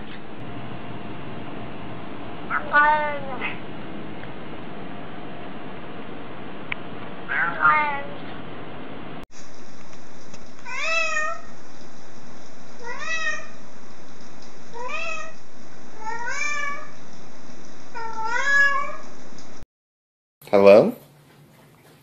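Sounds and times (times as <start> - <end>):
cat meowing: 2.5 - 3.6, 7.3 - 8.3, 10.6 - 11.6, 12.8 - 13.6, 14.7 - 15.4, 16.0 - 17.0, 17.9 - 19.1
steady hiss: 9.3 - 19.6.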